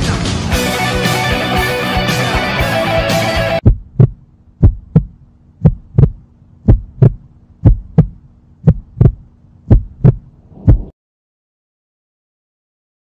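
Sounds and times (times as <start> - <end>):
faint steady hum: 3.6 - 10.8
heartbeat thumps: 3.6 - 10.9.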